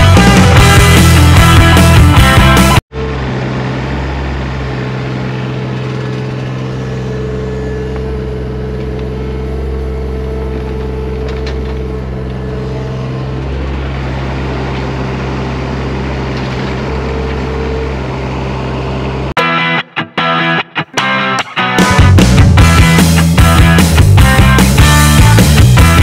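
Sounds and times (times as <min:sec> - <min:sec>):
excavator diesel engine running: 0:00.0 - 0:19.7, 0:20.9 - 0:26.0
hydraulic whine: 0:02.9 - 0:19.4.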